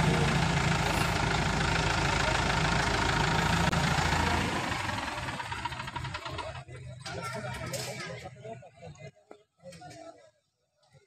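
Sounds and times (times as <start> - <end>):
diesel engine idling: 0.0 - 7.0.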